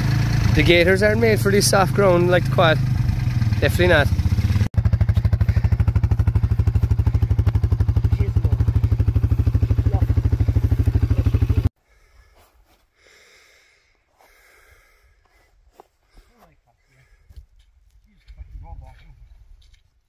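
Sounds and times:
quad bike engine idling: 0:00.0 - 0:11.7.

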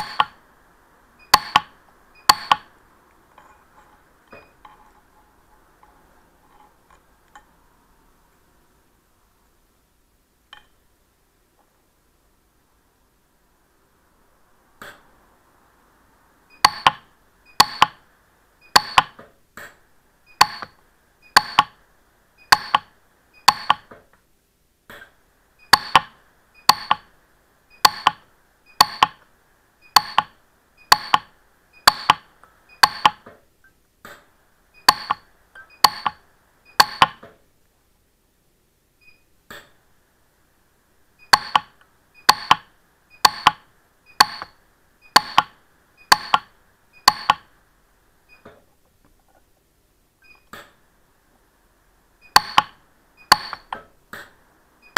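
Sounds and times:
faint steady hiss: 0:00.0 - 0:54.9.

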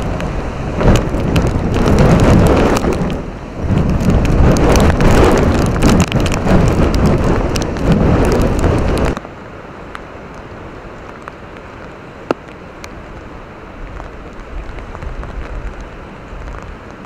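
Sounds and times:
strong wind buffeting microphone: 0:00.0 - 0:09.2
rain pelting down: 0:00.0 - 0:17.0
wind and sea rushing: 0:00.0 - 0:17.0.

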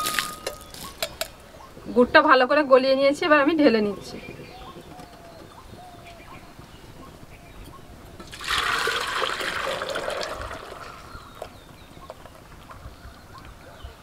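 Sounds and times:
syrup pouring into metal pot: 0:08.2 - 0:11.0.

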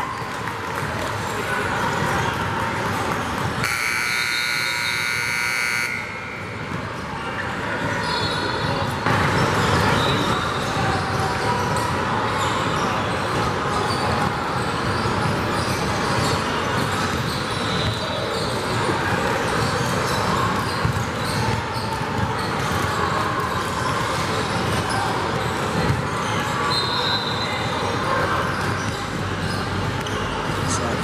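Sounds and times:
many voices chattering: 0:00.0 - 0:31.0
basketballs bouncing on hardwood: 0:18.8 - 0:22.9.

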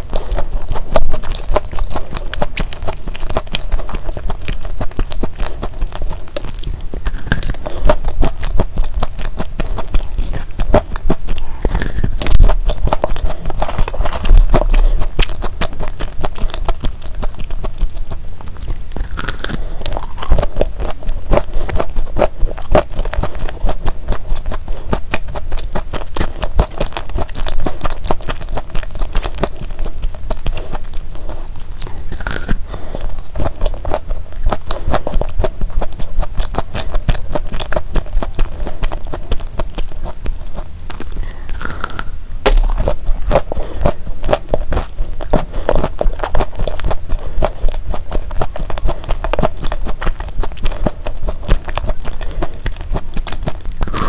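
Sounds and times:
chewing crunchy cookie: 0:00.0 - 0:54.0
mouth clicks: 0:00.3 - 0:35.2.

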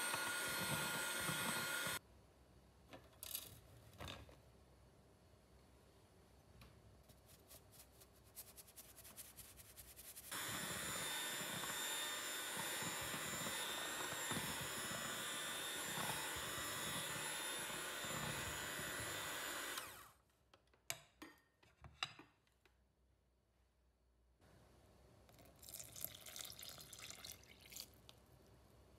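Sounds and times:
electric hand mixer running: 0:00.0 - 0:02.0, 0:10.3 - 0:20.2
flour shaken through sieve: 0:07.0 - 0:10.3.

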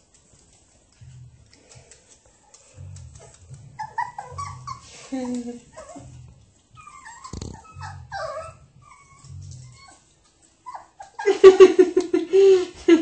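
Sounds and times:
puppies whimpering: 0:02.8 - 0:11.3.

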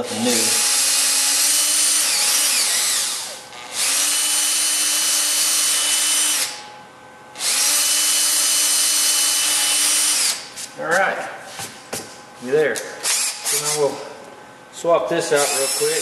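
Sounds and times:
cordless drill cutting wood: 0:00.2 - 0:06.6, 0:07.4 - 0:10.4, 0:13.0 - 0:13.8, 0:15.4 - 0:16.0.

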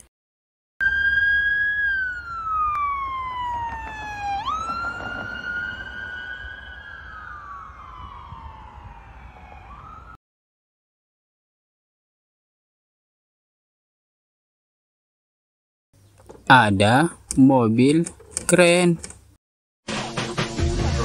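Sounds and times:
low traffic rumble: 0:00.8 - 0:10.2
police siren wailing: 0:00.8 - 0:10.2.

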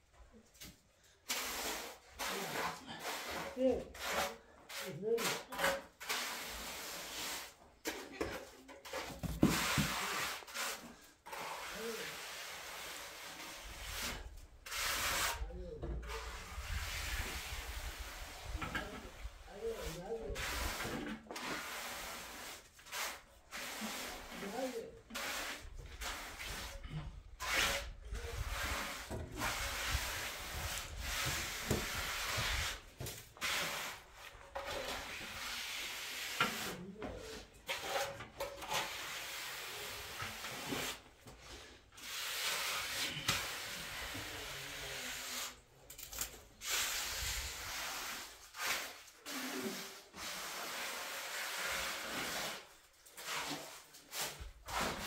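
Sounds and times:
rough scraping strokes: 0:01.3 - 0:45.6.

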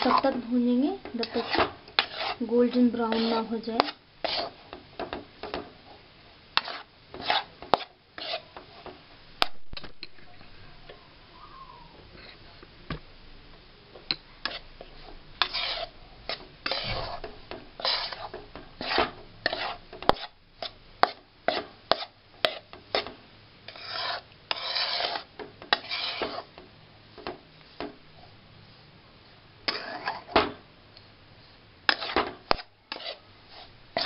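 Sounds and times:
spatula scraping flour in pan: 0:00.0 - 0:05.7, 0:06.6 - 0:09.0, 0:14.4 - 0:26.6, 0:29.6 - 0:30.5, 0:31.4 - 0:34.0.

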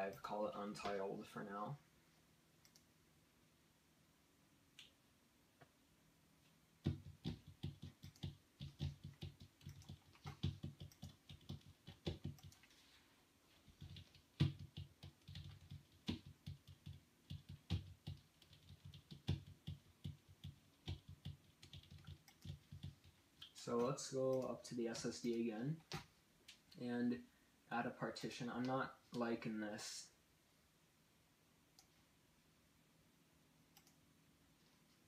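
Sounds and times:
rapid irregular clicking and tapping: 0:06.8 - 0:12.8, 0:13.5 - 0:24.5.

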